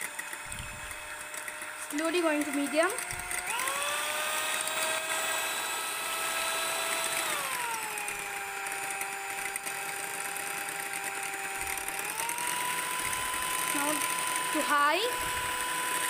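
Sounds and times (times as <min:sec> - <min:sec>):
electric hand mixer whining: 0:00.0 - 0:16.0.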